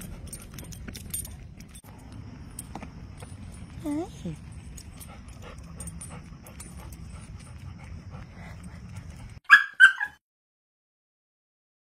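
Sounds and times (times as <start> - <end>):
dog yipping: 9.4 - 10.2.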